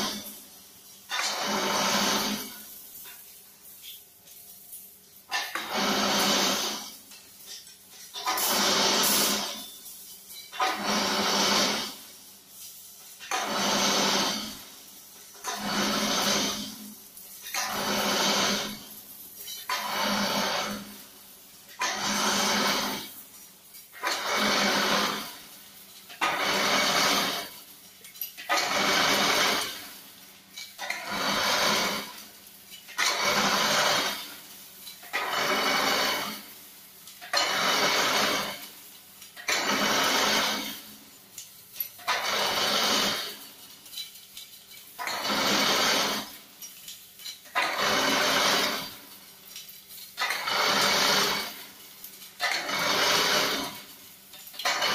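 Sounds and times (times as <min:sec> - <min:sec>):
weaving machine bursts: 0:01.1 - 0:02.6, 0:05.3 - 0:06.9, 0:08.2 - 0:09.6, 0:10.5 - 0:12.0, 0:13.3 - 0:14.7, 0:15.4 - 0:16.8, 0:17.5 - 0:18.8, 0:19.7 - 0:20.9, 0:21.8 - 0:23.1, 0:24.0 - 0:25.4, 0:26.2 - 0:27.5, 0:28.5 - 0:29.9, 0:30.8 - 0:32.2, 0:33.0 - 0:34.4, 0:35.1 - 0:36.5, 0:37.3 - 0:38.6, 0:39.5 - 0:40.9, 0:42.0 - 0:43.4, 0:45.0 - 0:46.3, 0:47.6 - 0:49.1, 0:50.2 - 0:51.7, 0:52.4 - 0:53.9, 0:54.6 - 0:54.9.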